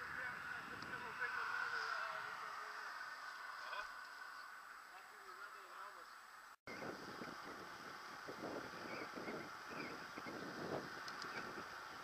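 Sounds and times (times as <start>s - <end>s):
bicycle road noise on asphalt: 0.0s - 12.0s
wind buffeting microphone: 6.7s - 12.0s.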